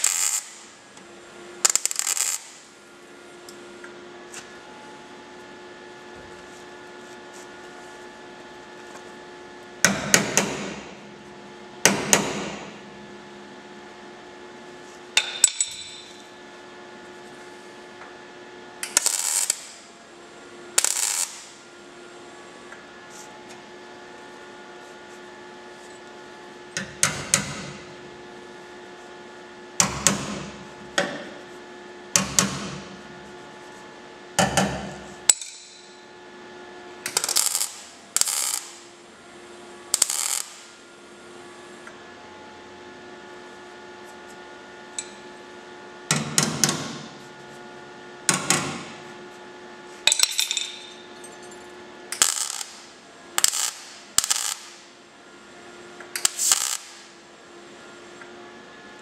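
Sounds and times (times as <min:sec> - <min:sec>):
welding arc bursts: 0:00.0 - 0:00.8, 0:01.6 - 0:02.7, 0:18.8 - 0:19.9, 0:20.8 - 0:21.6, 0:37.1 - 0:38.9, 0:39.9 - 0:40.8, 0:52.1 - 0:54.9, 0:56.2 - 0:57.1
steady low hum: 0:00.0 - 0:58.4.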